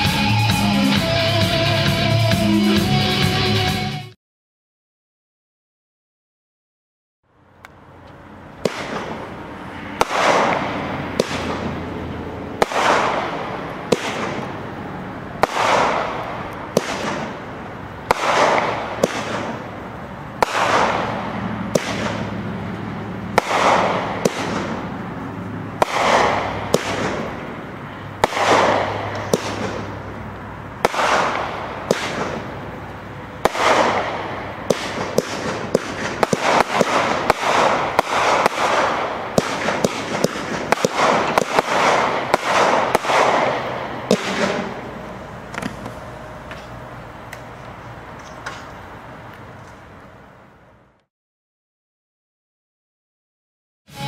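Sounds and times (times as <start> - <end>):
firework shots and bursts: 8.6 - 45.9
firework crackle: 8.6 - 49.8.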